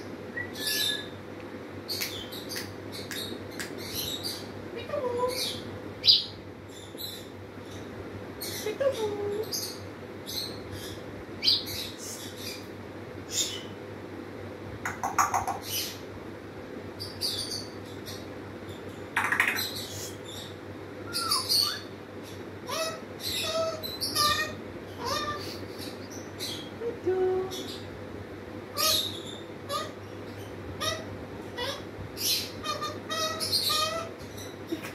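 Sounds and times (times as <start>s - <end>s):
parrot chirps and clicks: 1.9s - 3.8s, 14.8s - 15.6s, 19.2s - 19.8s.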